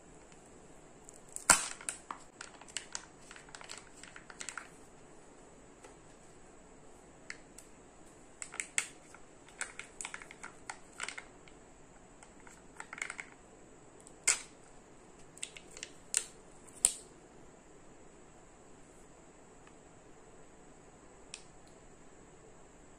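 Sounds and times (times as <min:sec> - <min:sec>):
foil and plastic crackling: 0:01.2 - 0:04.9, 0:08.4 - 0:11.3, 0:12.2 - 0:13.4.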